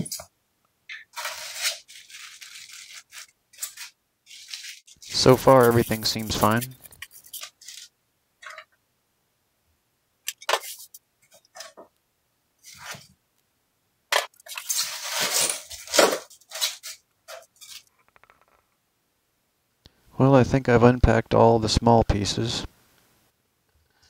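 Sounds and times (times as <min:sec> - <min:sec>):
paper and plastic wrap rustling: 0:01.1 - 0:08.6, 0:14.4 - 0:17.9.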